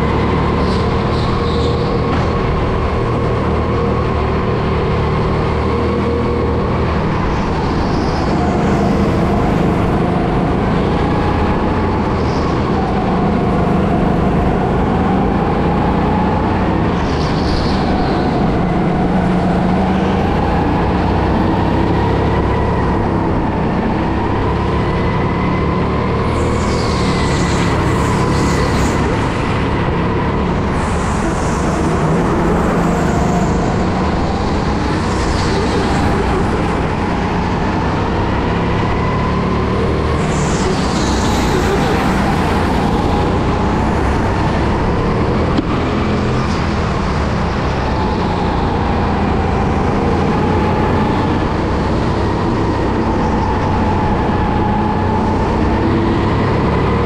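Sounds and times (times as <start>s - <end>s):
go-kart motor whine: 0.0s - 57.0s.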